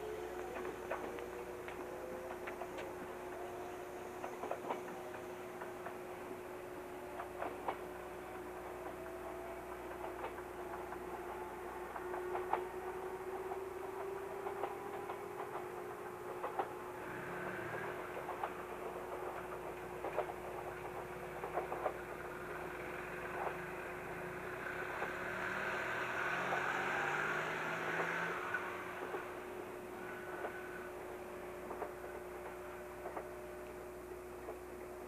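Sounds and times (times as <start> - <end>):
electric train rumble and hum: 0.0 - 35.0.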